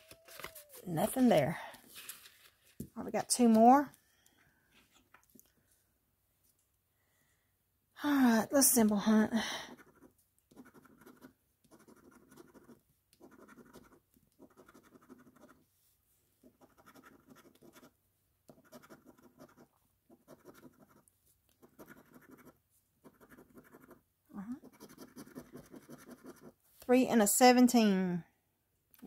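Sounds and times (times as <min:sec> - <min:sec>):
coin scratching lottery ticket: 0:09.8 - 0:15.6, 0:16.6 - 0:17.9, 0:18.5 - 0:21.0, 0:21.6 - 0:24.0, 0:24.6 - 0:26.5.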